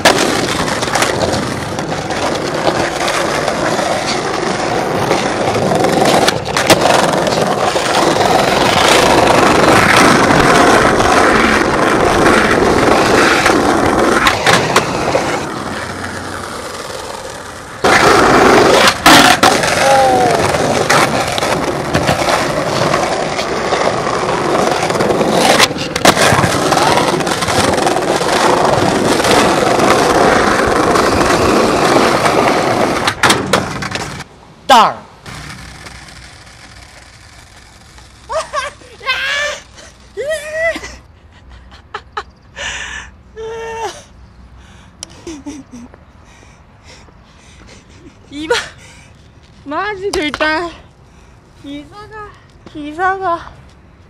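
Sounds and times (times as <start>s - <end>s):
skateboard clacks: 0.0s - 34.3s
skateboard wheels rolling on paving: 0.0s - 41.6s, 43.4s - 54.0s.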